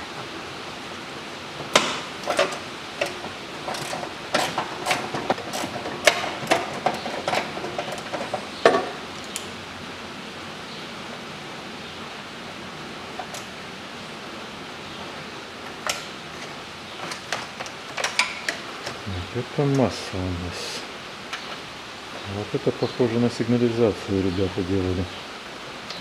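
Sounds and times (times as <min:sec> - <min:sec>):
steady hiss: 0:00.0 - 0:26.0
tools clicking and clinking: 0:01.7 - 0:09.5, 0:15.7 - 0:19.0.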